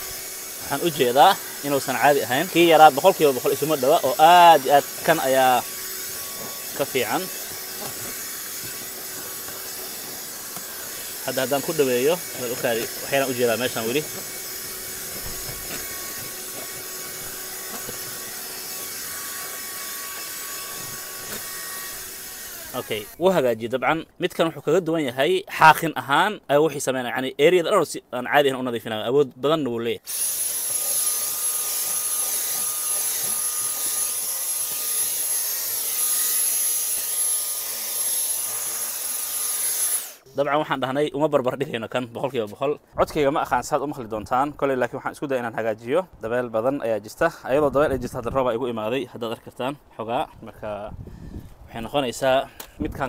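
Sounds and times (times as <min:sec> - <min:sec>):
handheld vacuum cleaner running: 0:00.0 - 0:23.2, 0:30.1 - 0:40.3
nozzle scraping rubber mat: 0:03.0 - 0:18.4.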